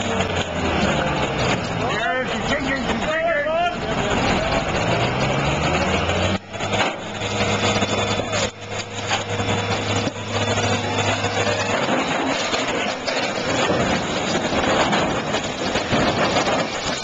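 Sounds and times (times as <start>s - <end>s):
crane engine running: 0.0s - 17.0s.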